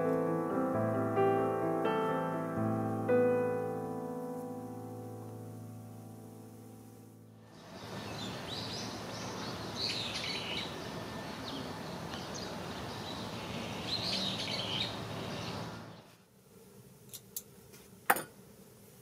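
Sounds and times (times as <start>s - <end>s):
piano piece: 0.0s - 8.1s
outdoor ambience hiss: 0.0s - 19.0s
small birds chirping: 7.5s - 16.2s.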